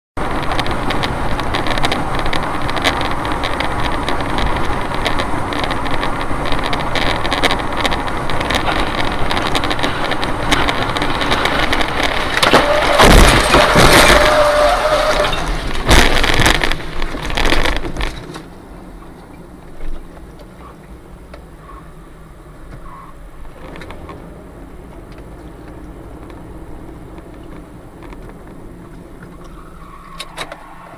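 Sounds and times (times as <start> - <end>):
car road noise: 0.2 - 30.9
plane crash rushing and grinding: 8.6 - 16.6
wreckage crashing: 8.6 - 18.3.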